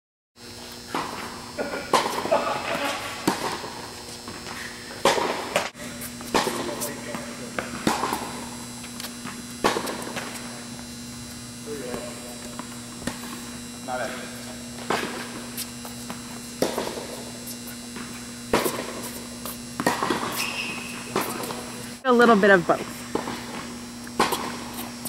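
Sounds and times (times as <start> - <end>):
steady electrical hum: 0.4 - 25.0
tennis ball hit and bouncing: 3.2 - 3.8, 5.0 - 10.6, 14.8 - 17.4, 18.0 - 21.6, 23.1 - 24.9.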